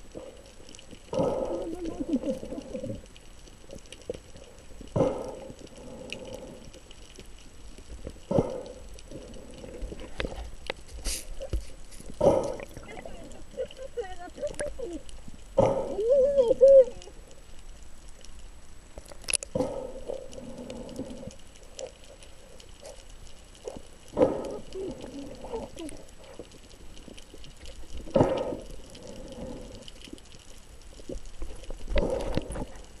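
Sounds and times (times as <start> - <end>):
underwater gurgling bubbling rush: 0.0 - 33.0.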